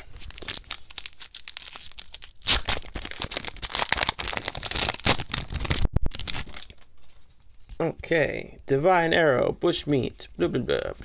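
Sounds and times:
foil wrapper crinkling and tearing: 0:00.0 - 0:07.5.

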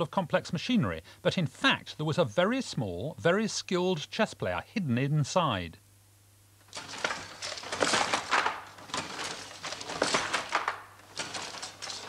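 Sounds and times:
handloom wooden knocks: 0:06.7 - 0:12.0.

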